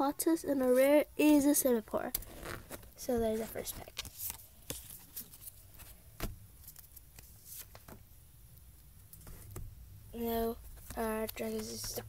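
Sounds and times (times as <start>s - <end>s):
cards tapping and rustling: 2.1s - 8.0s, 9.0s - 12.0s.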